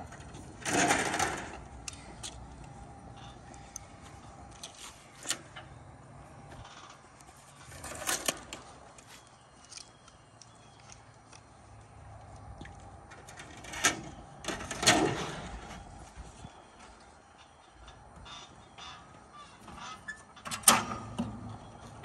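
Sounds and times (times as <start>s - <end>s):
sheet metal rattling and scraping: 0.0s - 1.8s, 13.1s - 16.0s.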